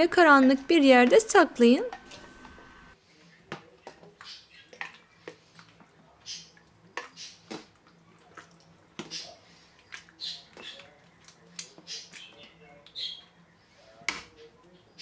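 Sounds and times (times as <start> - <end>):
wet squelching and slopping: 4.0 - 12.4.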